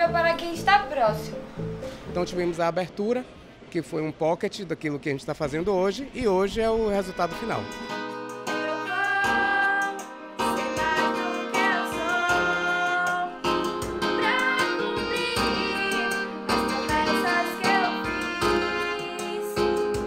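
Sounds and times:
instrumental accompaniment: 6.4 - 20.0
girl singing: 8.5 - 13.4, 14.2 - 19.8.

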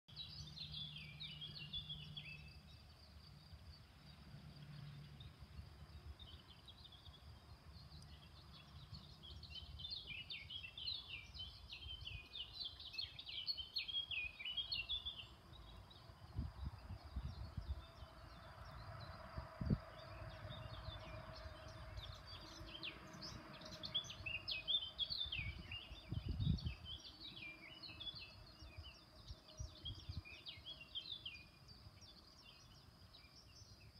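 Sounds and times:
songbirds chirping: 0.1 - 33.9.

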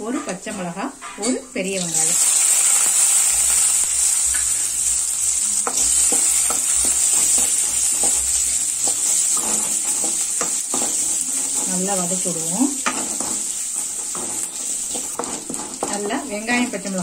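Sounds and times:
vegetables sizzling in oil: 1.0 - 17.0
wooden spatula scraping pan: 5.6 - 17.0.

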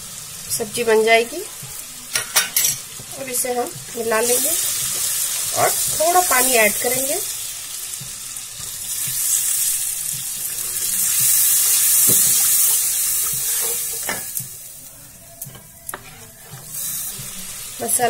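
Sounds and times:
masala sizzling in hot oil: 0.0 - 18.0.

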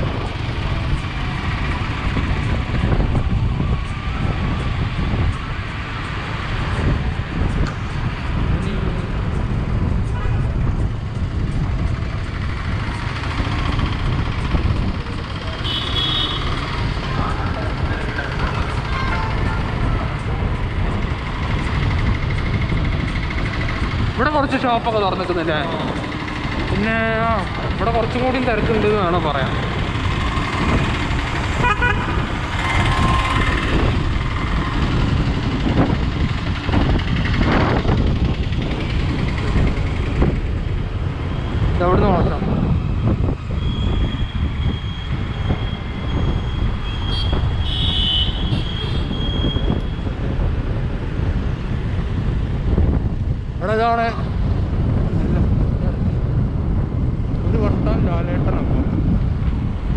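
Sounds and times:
wind on microphone: 0.0 - 59.9
scooter engine: 10.9 - 24.6, 25.2 - 41.6.

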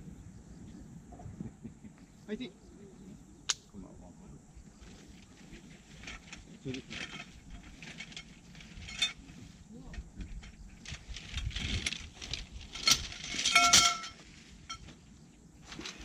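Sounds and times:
camping gear clattering: 4.8 - 16.0.

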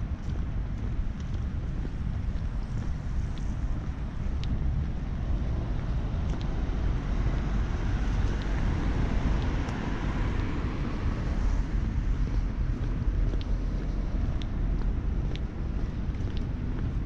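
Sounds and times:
outdoor harbourside noise: 0.0 - 17.0
wind buffeting microphone: 0.0 - 17.0.

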